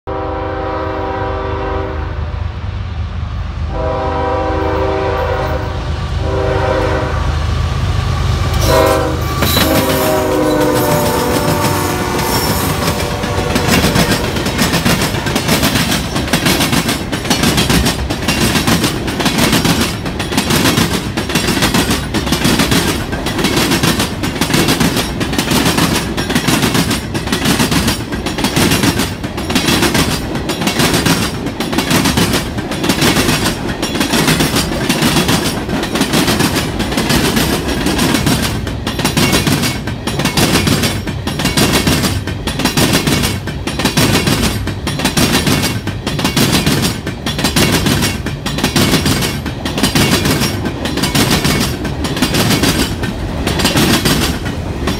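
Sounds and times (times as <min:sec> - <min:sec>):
train horn blasts: 0:00.0 - 0:02.4, 0:03.7 - 0:14.4
train wheels clickety-clack: 0:08.4 - 0:54.9.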